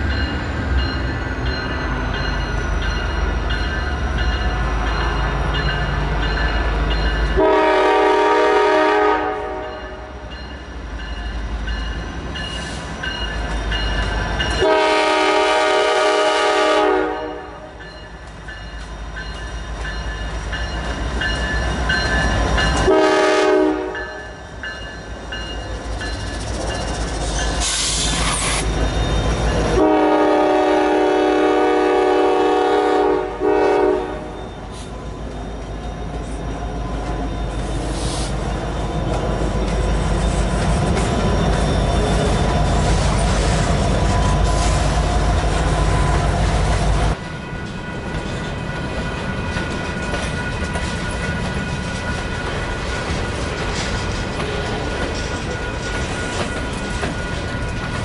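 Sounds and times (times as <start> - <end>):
locomotive air horn blasts: 7.4 - 10.1, 14.6 - 17.8, 22.9 - 24.2, 29.8 - 34.4.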